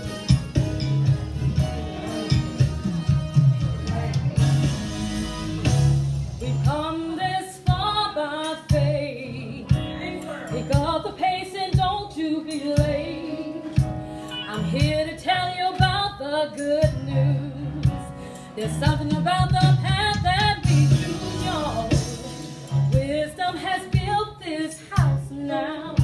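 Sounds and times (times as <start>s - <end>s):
steady beat: 0.0s - 6.8s
guitar accompaniment: 0.0s - 26.0s
woman singing gospel: 6.4s - 26.0s.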